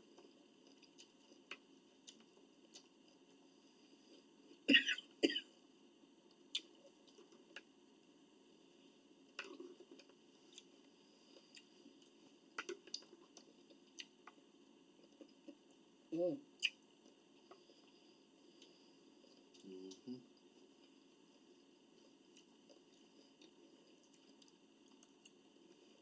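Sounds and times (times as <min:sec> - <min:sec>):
person clearing throat: 0:04.7 - 0:05.5.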